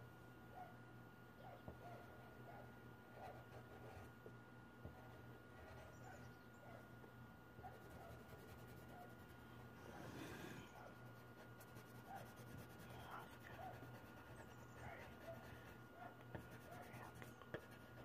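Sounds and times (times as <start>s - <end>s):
low steady hum: 0.0s - 18.0s
pencil scratching on paper: 3.1s - 4.1s, 4.9s - 6.2s, 7.7s - 9.4s, 10.8s - 15.8s, 16.4s - 18.0s.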